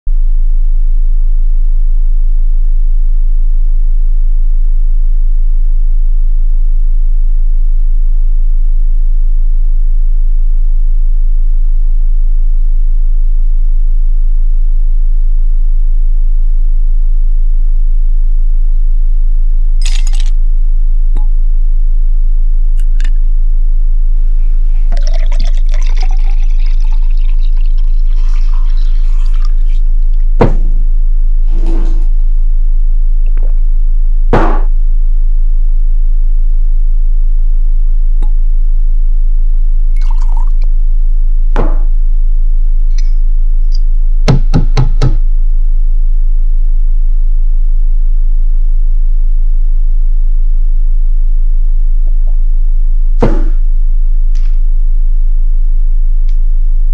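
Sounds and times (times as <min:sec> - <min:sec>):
deep hum: 0:00.0 - 0:56.9
liquor pouring into glass: 0:19.8 - 0:20.3, 0:24.7 - 0:30.2, 0:40.0 - 0:40.7.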